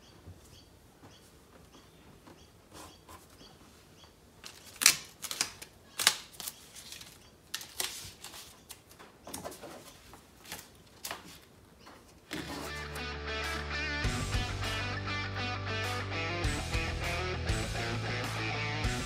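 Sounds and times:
masking tape ripping: 0:04.4 - 0:08.4, 0:12.3 - 0:13.0.

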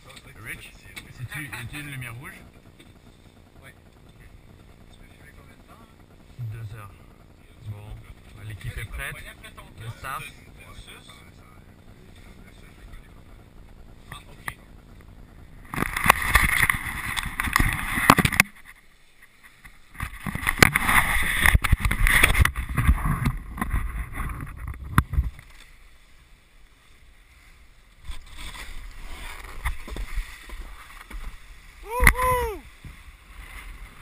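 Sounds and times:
snowboard scraping on snow: 0:28.2 - 0:31.6.

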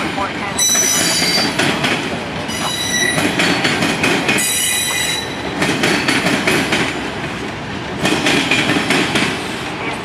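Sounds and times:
train wheels squealing: 0:00.6 - 0:01.6, 0:02.5 - 0:03.4, 0:04.4 - 0:05.5
wheels clattering over rail joints: 0:00.6 - 0:10.0.

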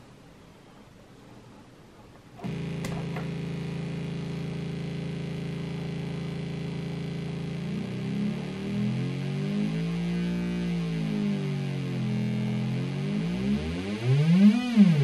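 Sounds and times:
faint background hiss: 0:00.0 - 0:07.0
clicks: 0:02.4 - 0:03.6
buzzy square-wave tone: 0:02.4 - 0:15.0.

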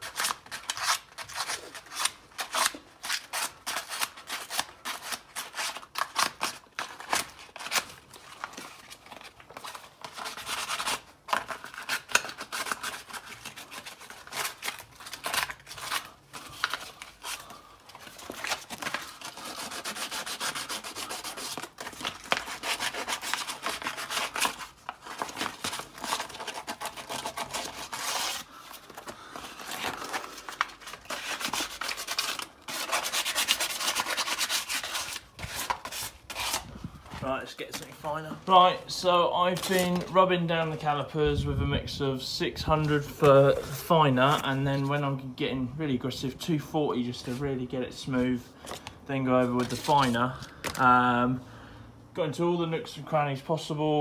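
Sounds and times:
sandpaper rubbing on metal: 0:19.3 - 0:21.6.

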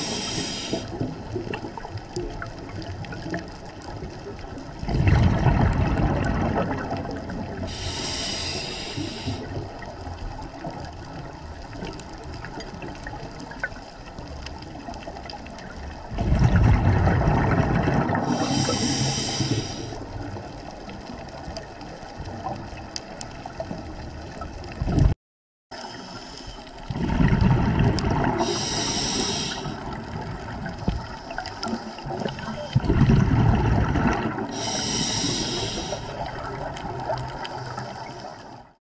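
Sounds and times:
regulator hissing: 0:00.0 - 0:00.9, 0:07.7 - 0:09.4, 0:28.4 - 0:29.8, 0:34.6 - 0:36.2
exhaled bubbles rushing: 0:00.0 - 0:07.8, 0:14.7 - 0:19.6, 0:26.8 - 0:37.8.

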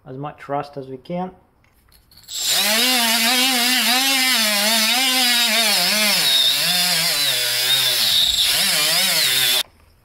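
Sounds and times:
die grinder motor: 0:02.3 - 0:09.6.

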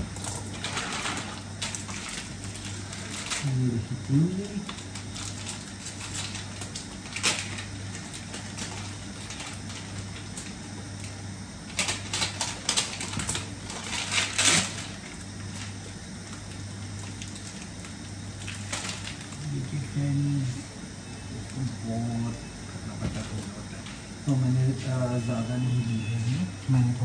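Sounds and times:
plastic packet crinkling: 0:00.2 - 0:03.7, 0:04.5 - 0:11.1, 0:11.7 - 0:19.6.

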